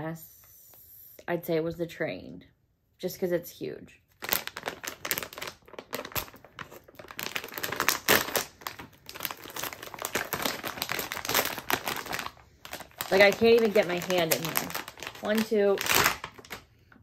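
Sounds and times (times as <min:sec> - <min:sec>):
plastic packaging crinkling and tearing: 0:04.1 - 0:16.7.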